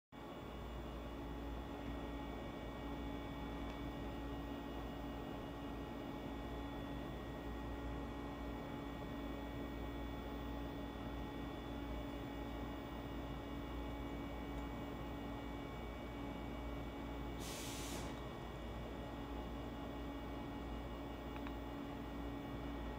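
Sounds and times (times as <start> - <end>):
electrical hum: 0.2 - 22.9
short hiss: 17.4 - 18.2.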